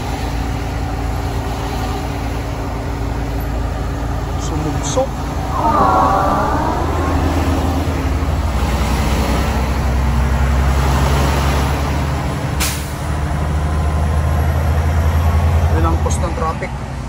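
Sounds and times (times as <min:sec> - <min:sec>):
road noise: 0:05.0 - 0:10.3
truck engine low drone: 0:05.1 - 0:10.4.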